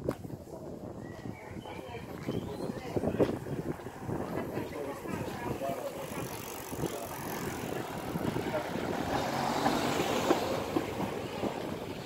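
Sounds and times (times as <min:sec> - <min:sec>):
car passing close: 0:05.8 - 0:12.0.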